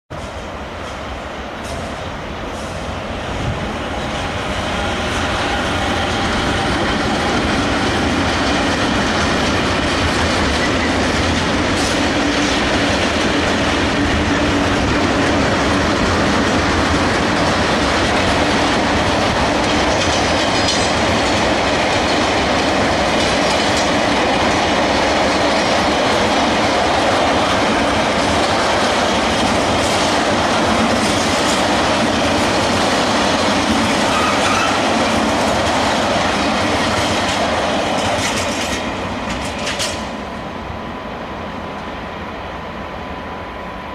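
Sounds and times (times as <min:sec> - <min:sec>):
freight train rumbling past: 0:00.1 - 0:43.9
wheels clicking over rail joints: 0:17.3 - 0:40.1
wheel squeal: 0:34.0 - 0:34.9.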